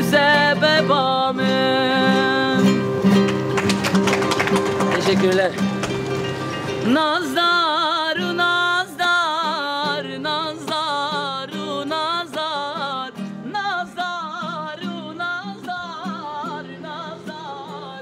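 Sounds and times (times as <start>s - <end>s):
man singing ornamented melody: 0.0s - 3.0s, 6.7s - 18.0s
strummed acoustic guitar: 0.0s - 18.0s.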